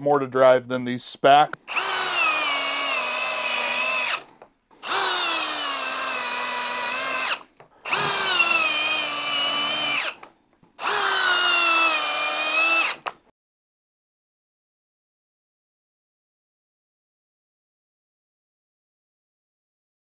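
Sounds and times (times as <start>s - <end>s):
drill driving screws into wood: 1.6s - 13.2s.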